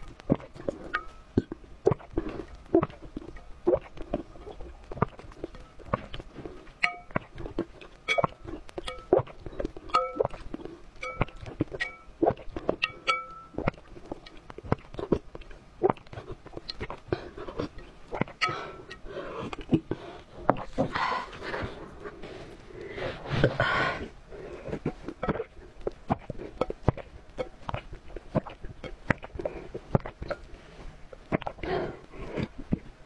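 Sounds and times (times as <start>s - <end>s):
spoon clinking on ceramic bowl: 10.0s - 10.2s.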